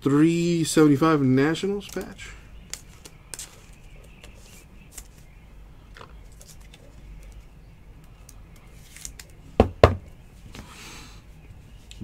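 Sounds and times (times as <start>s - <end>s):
low steady hum: 0.0s - 12.0s
trading cards clicking and rustling: 1.6s - 5.3s, 6.1s - 9.4s.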